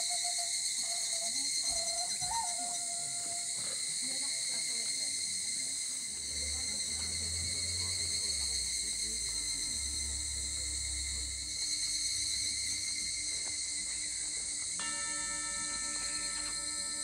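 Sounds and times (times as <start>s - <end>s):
cicadas buzzing: 0.0s - 17.0s
sustained ringing musical tones: 6.1s - 17.0s
low humming bass: 6.6s - 14.4s.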